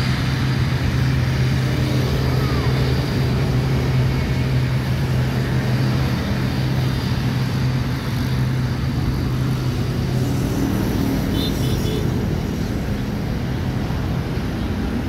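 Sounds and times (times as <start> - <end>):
turboprop engines droning: 0.0 - 15.0.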